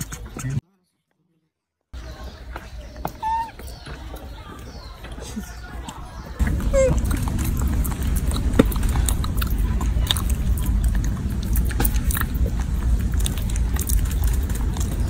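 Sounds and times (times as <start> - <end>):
monkey chewing cucumber: 3.2 - 15.0
steady low rumble: 6.4 - 15.0.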